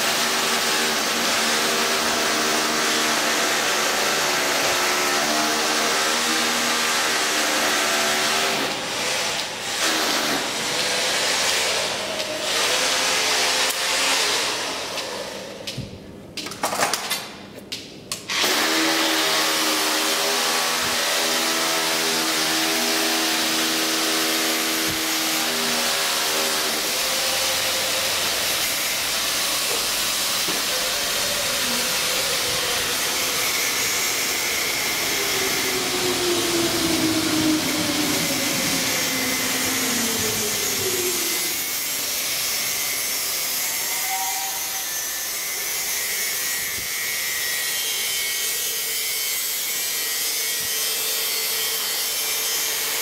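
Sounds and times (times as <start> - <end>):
humming drone: 27.3 - 42.8.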